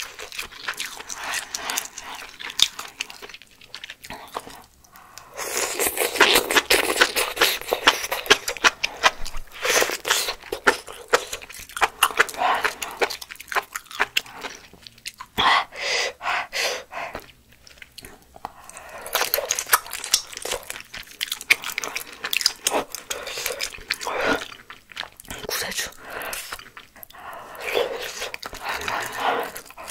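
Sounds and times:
wet chewing with mouth clicks: 0:00.0 - 0:15.4, 0:16.8 - 0:29.9
noodles slurped: 0:17.1 - 0:29.9.

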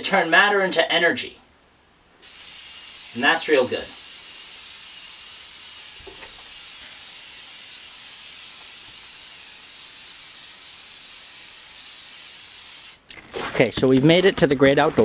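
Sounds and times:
aerosol can spraying: 0:02.2 - 0:13.1.

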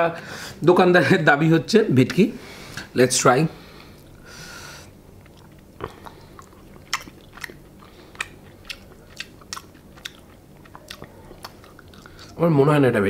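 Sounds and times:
person chewing crispy food: 0:04.9 - 0:12.4.

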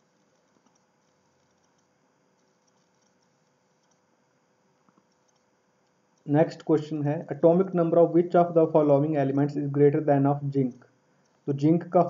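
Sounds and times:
faint clicks: 0:00.2 - 0:04.0, 0:04.8 - 0:06.3.

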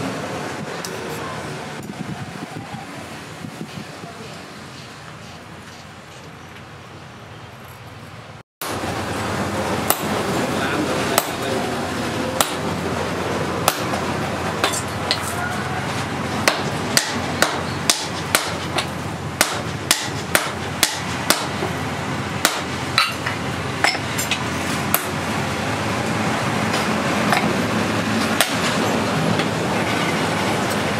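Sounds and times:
hammer striking hot steel on anvil: 0:09.8 - 0:10.2, 0:11.1 - 0:11.5, 0:12.4 - 0:12.8, 0:13.6 - 0:15.4, 0:16.4 - 0:21.8, 0:22.4 - 0:25.2, 0:28.2 - 0:28.8.

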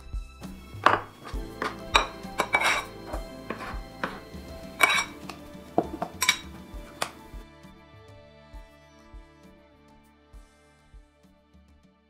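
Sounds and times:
background music: 0:00.0 - 0:12.0
knife cutting on plastic board: 0:00.8 - 0:07.2.

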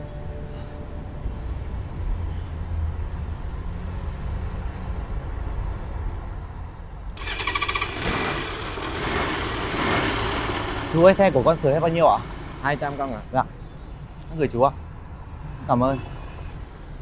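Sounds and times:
low traffic rumble: 0:00.0 - 0:17.0
small motorbike engine starting and revving: 0:07.2 - 0:13.4.

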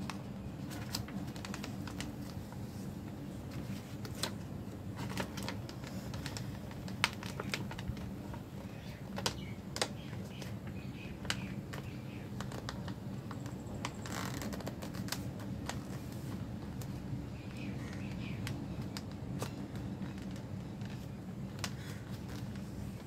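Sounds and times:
paper being folded and creased: 0:00.0 - 0:10.6, 0:11.2 - 0:23.0
paper rustling: 0:00.0 - 0:17.0
steady low hum: 0:00.0 - 0:23.0.

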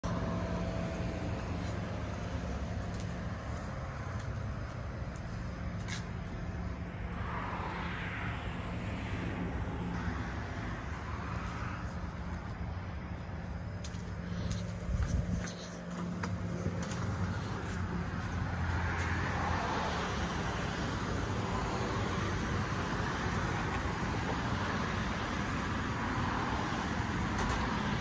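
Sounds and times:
low hum with rumble: 0:00.0 - 0:28.0.

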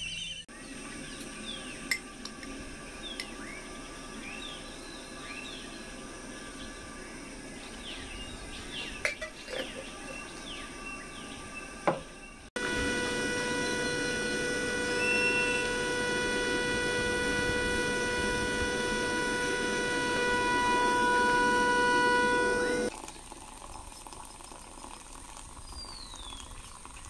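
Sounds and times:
birds chirping: 0:02.8 - 0:22.9
kettle whistling: 0:12.6 - 0:24.5.

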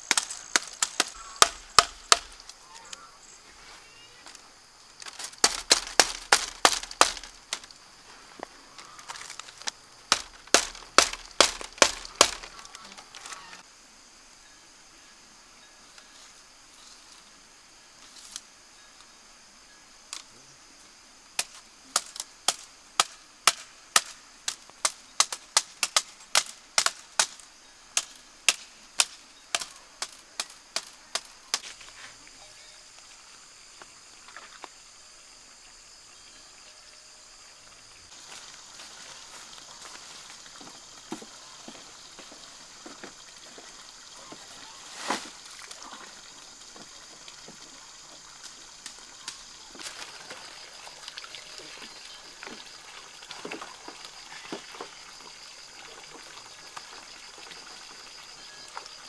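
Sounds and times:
machete chopping bamboo poles: 0:00.0 - 0:02.6, 0:05.0 - 0:07.7, 0:09.0 - 0:13.4, 0:21.4 - 0:27.4, 0:28.0 - 0:31.8
high insect drone: 0:00.0 - 0:59.0.

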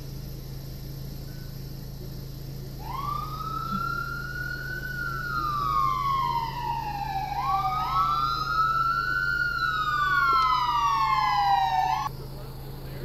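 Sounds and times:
police sirens wailing: 0:02.8 - 0:12.1.

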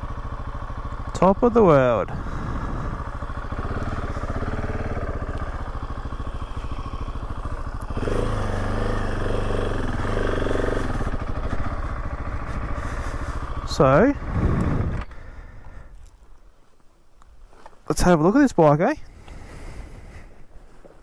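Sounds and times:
motorcycle engine running: 0:00.0 - 0:16.2.

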